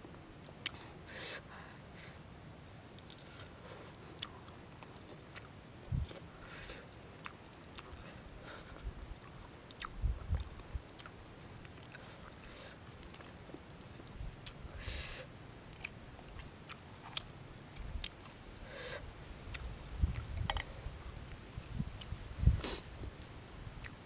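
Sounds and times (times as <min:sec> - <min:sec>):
person chewing food: 0:02.1 - 0:14.9, 0:15.7 - 0:24.0
mouth clicks: 0:04.2 - 0:20.7.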